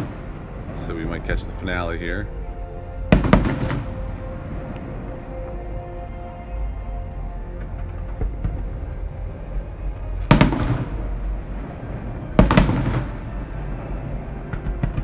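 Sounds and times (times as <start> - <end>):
steady low rumble: 0.0 - 15.0
fireworks bursting: 3.0 - 5.2, 7.6 - 15.0.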